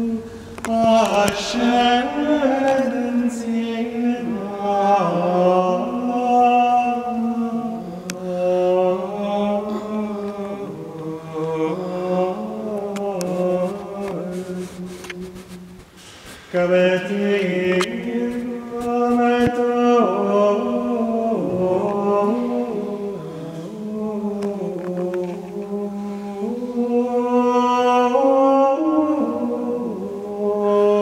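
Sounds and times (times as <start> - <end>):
man chanting plainchant: 0.0 - 15.6, 16.4 - 31.0.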